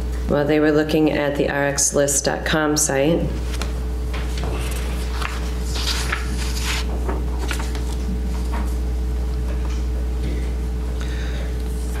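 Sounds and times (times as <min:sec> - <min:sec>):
low electrical hum: 0:00.0 - 0:12.0
paper rustling and clicking: 0:04.3 - 0:08.0.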